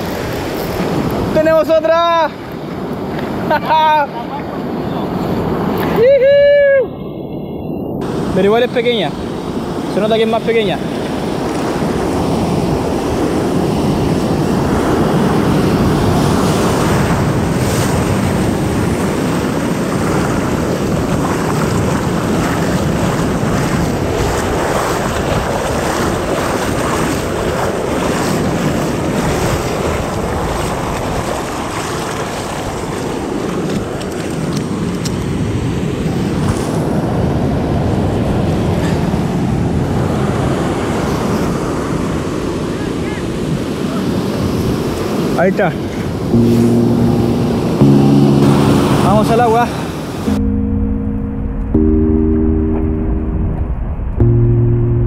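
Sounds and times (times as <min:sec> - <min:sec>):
ocean surf washing: 0:00.0 - 0:07.4, 0:08.0 - 0:55.0
wind buffeting microphone: 0:10.8 - 0:40.0.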